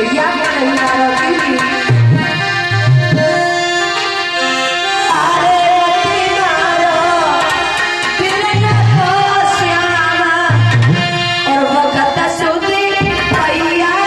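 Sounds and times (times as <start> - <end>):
harmonium holding notes: 0.0 - 14.0
person singing: 5.0 - 10.7
tabla strokes: 10.5 - 11.5.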